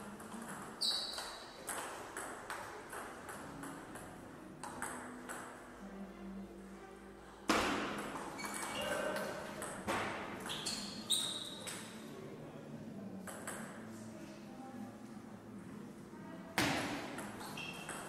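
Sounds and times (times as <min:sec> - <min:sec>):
ping pong ball clicking: 0:00.2 - 0:05.5, 0:13.2 - 0:13.7
shoe squeaks: 0:00.8 - 0:01.5, 0:08.3 - 0:09.2, 0:10.4 - 0:11.9, 0:17.4 - 0:18.0.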